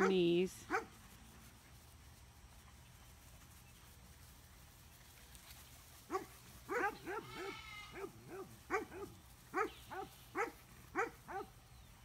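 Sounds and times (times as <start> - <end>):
puppies yipping: 6.1 - 11.6.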